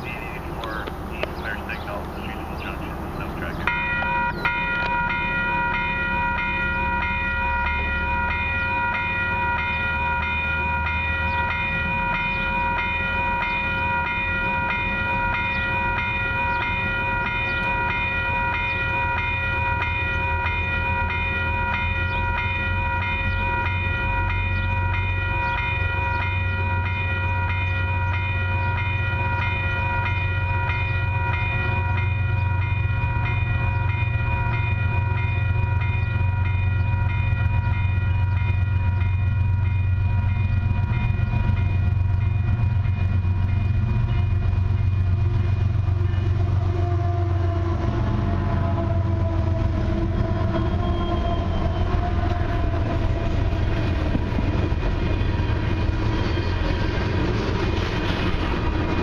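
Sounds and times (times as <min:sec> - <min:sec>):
level crossing warning bell: 0:00.0 - 0:46.5
low rumble of train: 0:00.0 - 0:59.0.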